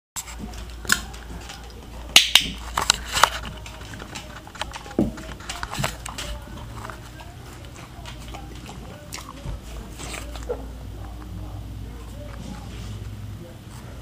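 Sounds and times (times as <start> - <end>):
puppy claws tapping on hard floor: 0.4 - 6.7.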